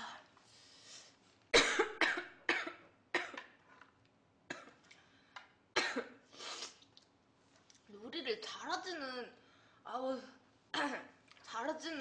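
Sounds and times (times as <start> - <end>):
woman coughing: 1.6 - 3.5, 5.8 - 6.2.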